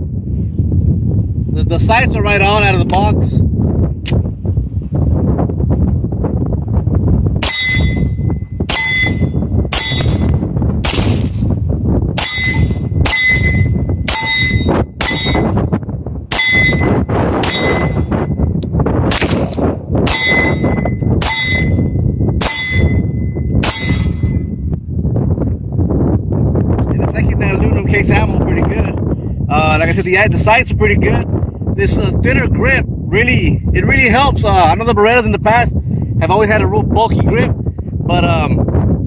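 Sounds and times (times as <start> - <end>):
wind noise on microphone: 0.0 - 39.0
steel target ringing: 7.4 - 10.5, 12.2 - 15.7, 16.3 - 18.5, 20.1 - 24.6
pistol shots: 9.7 - 11.4, 19.1 - 20.5.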